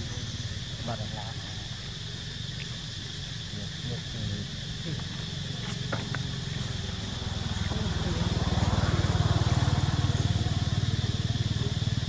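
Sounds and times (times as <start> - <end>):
small engine running: 5.2 - 12.0.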